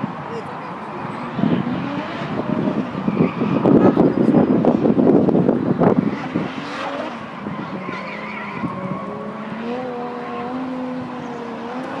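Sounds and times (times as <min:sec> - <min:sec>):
car engine at high revs: 0:00.0 - 0:12.0
faint tyre squeal: 0:01.1 - 0:04.3, 0:05.9 - 0:12.0.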